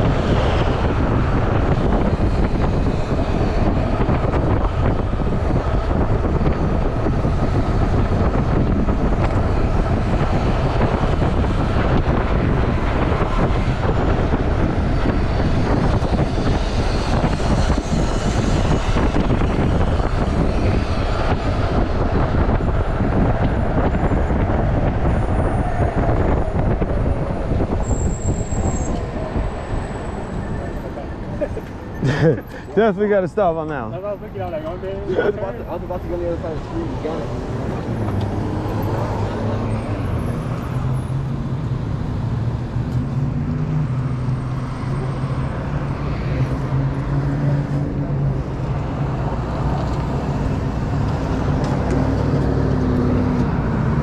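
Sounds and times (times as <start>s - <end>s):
wind rushing over microphone: 0.0s - 54.0s.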